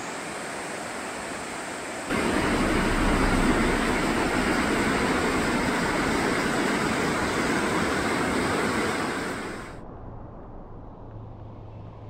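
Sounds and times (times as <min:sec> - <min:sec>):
loud rushing noise: 0:02.1 - 0:09.8.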